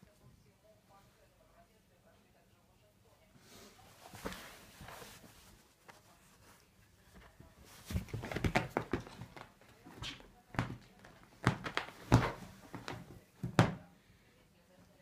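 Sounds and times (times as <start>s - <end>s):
rustling fabric: 3.5s - 13.3s
cat paws thumping: 7.2s - 13.8s.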